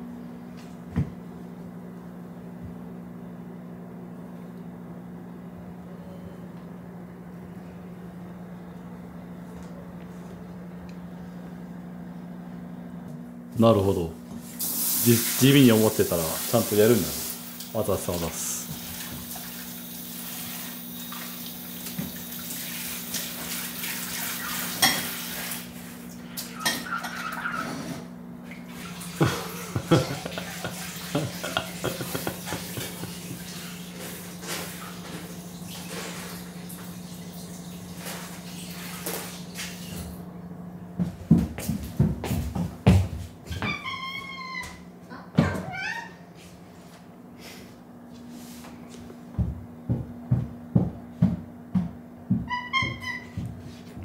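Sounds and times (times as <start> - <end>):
appliance humming: 0.0 - 54.0
tap running into sink: 21.1 - 22.3
dishes clinking: 26.6 - 27.4.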